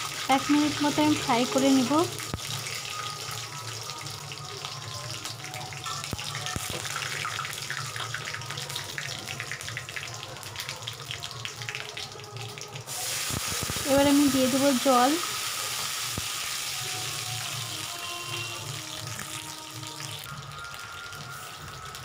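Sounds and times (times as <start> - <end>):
spices sizzling in hot oil: 0.0 - 22.0.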